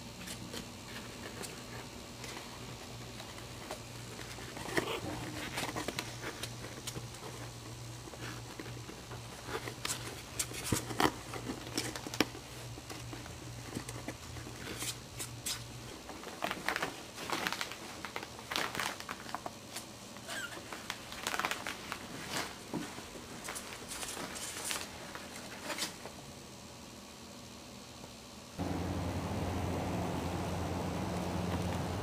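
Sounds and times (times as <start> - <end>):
paper crinkling and rustling: 0.2 - 26.2
low steady hum: 21.7 - 32.0.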